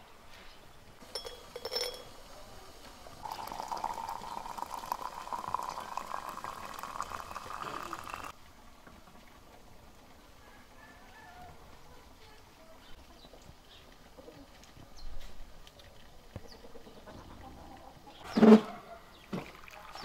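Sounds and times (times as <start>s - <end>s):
light clinks: 1.0s - 2.2s
water pouring into a teapot: 3.0s - 8.4s, 19.4s - 20.0s.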